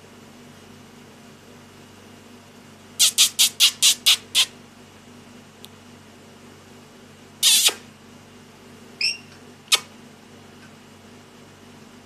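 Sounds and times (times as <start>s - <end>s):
lorikeet screeching: 9.0s - 9.3s.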